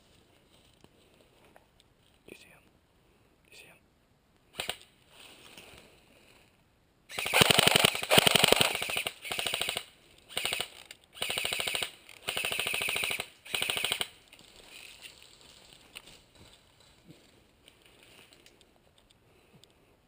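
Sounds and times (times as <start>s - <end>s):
airsoft gun firing bursts: 7.1s - 14.2s.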